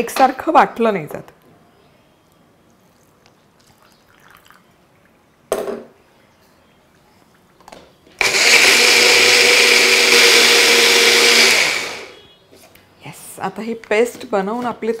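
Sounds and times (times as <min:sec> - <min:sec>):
electric mixer grinder running: 0:08.2 - 0:12.2.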